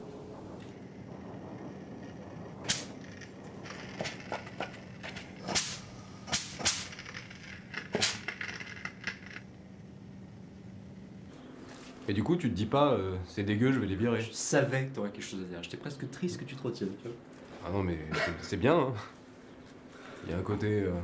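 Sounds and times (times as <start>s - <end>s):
steady low hum: 0.0s - 21.0s
steam puffs: 0.3s - 9.3s.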